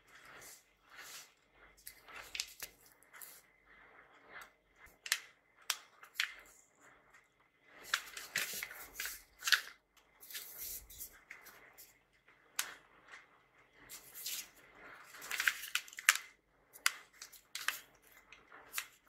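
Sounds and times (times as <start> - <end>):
paper crackling and rustling: 0.2 - 3.4, 7.8 - 11.9, 13.9 - 19.0.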